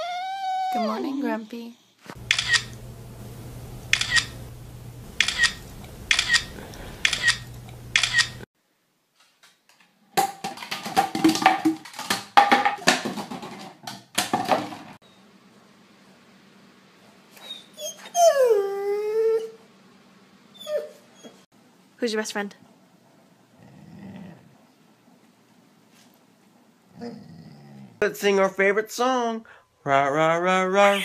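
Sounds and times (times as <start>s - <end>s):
dog yipping: 0.0s - 1.1s, 20.6s - 21.4s
dog whining: 0.0s - 1.4s, 17.4s - 19.6s, 20.5s - 21.4s.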